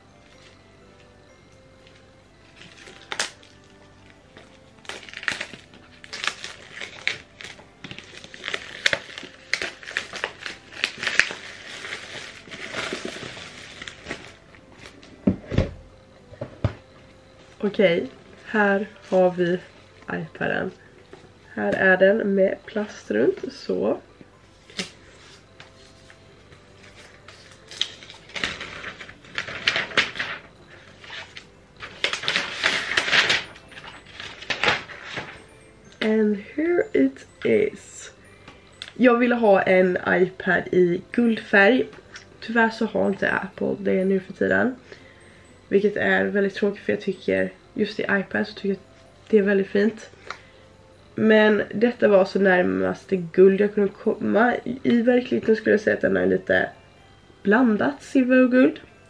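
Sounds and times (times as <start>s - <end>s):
plastic wrap crinkling: 0.2s - 15.3s, 24.7s - 35.6s.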